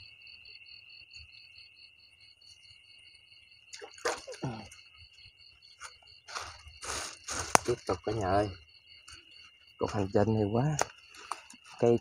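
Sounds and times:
night insects trilling: 0:00.0 - 0:12.0
wet splashing: 0:03.7 - 0:04.8.

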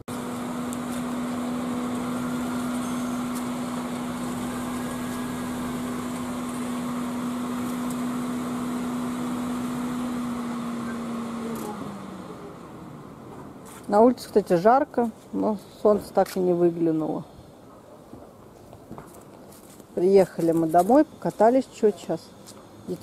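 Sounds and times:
car whirring hum: 0:00.0 - 0:13.7.

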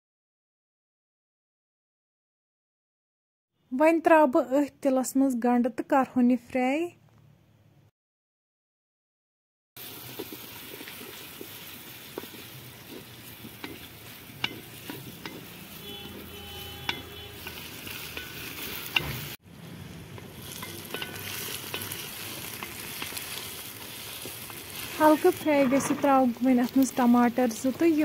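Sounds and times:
onions sizzling in hot oil: 0:09.8 - 0:28.0
spatula scraping a metal pot: 0:12.2 - 0:19.3, 0:20.4 - 0:26.8.

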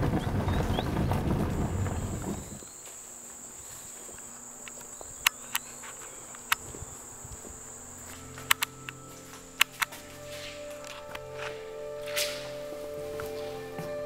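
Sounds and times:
crickets chirping: 0:00.0 - 0:14.0
sharp clicks: 0:04.6 - 0:07.4, 0:08.2 - 0:10.1.

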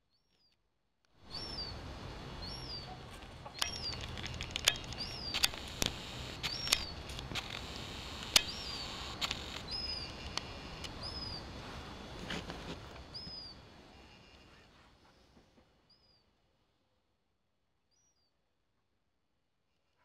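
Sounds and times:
background hiss: 0:01.2 - 0:15.5
gull chick peeping: 0:01.3 - 0:01.8, 0:02.4 - 0:11.5
sharp clicks: 0:03.4 - 0:11.4.

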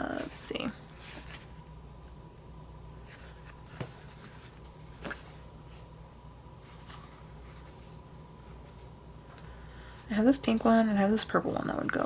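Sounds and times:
paper sheets rustling: 0:00.1 - 0:01.6, 0:03.0 - 0:05.9, 0:06.6 - 0:09.6.

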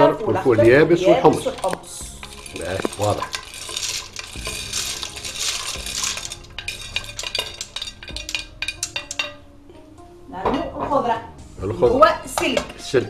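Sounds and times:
beans pouring and splashing into water: 0:01.2 - 0:09.3.

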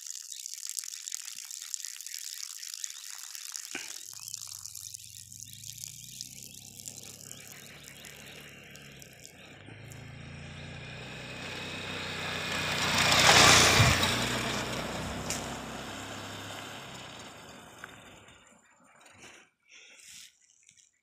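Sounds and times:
motorcycle passing at speed: 0:05.4 - 0:18.5.

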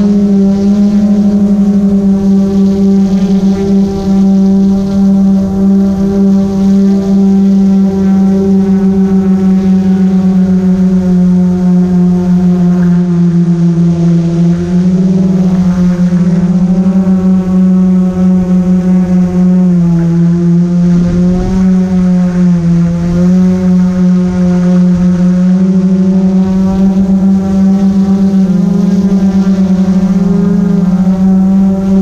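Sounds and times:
drone propellers buzzing: 0:00.0 - 0:32.0.

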